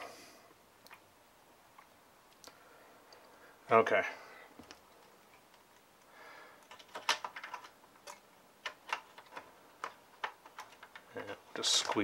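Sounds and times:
wires clicking on plastic case: 0:06.6 - 0:12.0.

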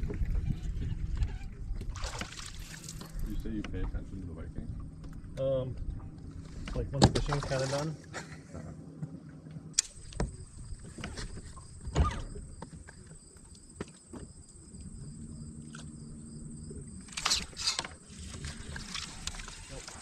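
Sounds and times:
electric trolling motor hum: 0:14.5 - 0:20.0.

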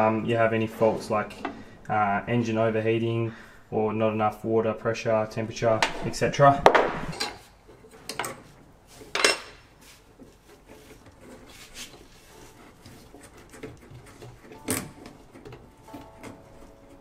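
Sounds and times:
wiring rustling: 0:05.7 - 0:17.0.

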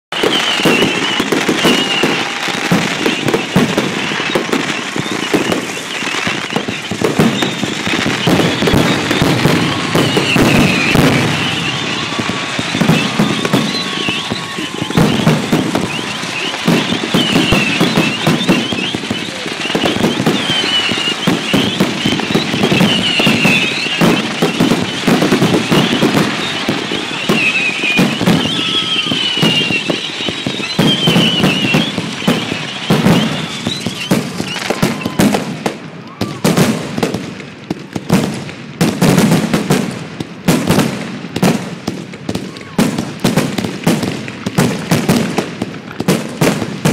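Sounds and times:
fireworks bangs and crackling: 0:00.1 - 0:46.9
high gliding firework squeals: 0:00.2 - 0:35.4.

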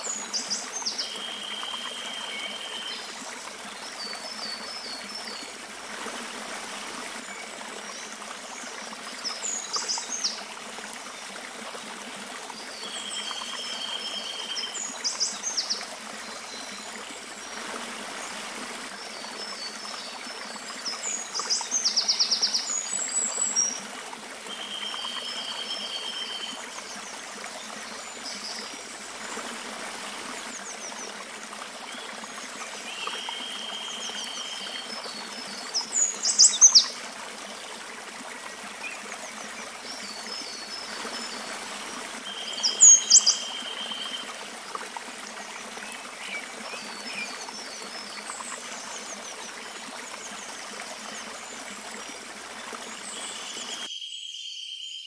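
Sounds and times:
creek water rushing over rocks: 0:00.0 - 0:53.9
birds singing: 0:42.3 - 0:44.2.

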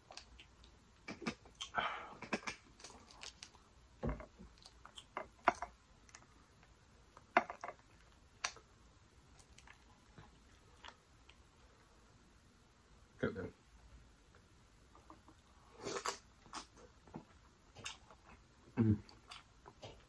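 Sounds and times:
mouth clicks: 0:00.2 - 0:03.1.

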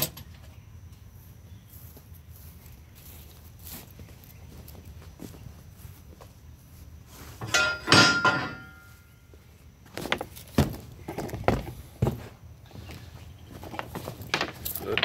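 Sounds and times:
loud metal clatter: 0:07.4 - 0:08.8
light knocks and thuds: 0:09.9 - 0:12.4.

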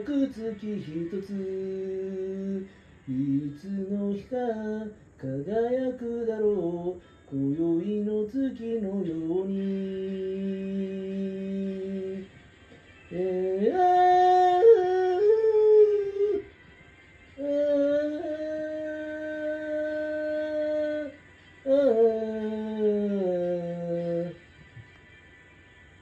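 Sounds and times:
person singing wordless held notes: 0:17.4 - 0:24.4.

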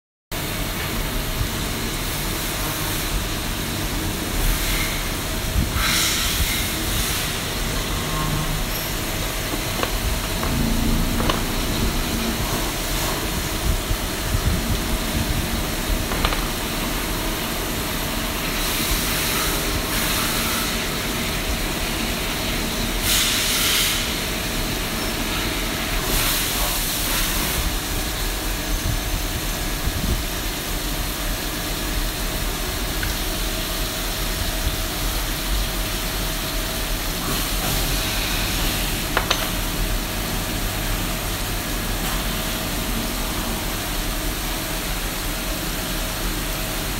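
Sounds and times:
machine hum: 0:03.4 - 0:19.8.

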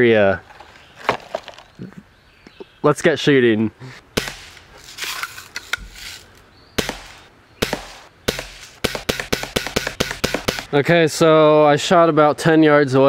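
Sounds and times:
sharp cracks: 0:04.1 - 0:10.8
bb gun pops: 0:06.8 - 0:10.7.

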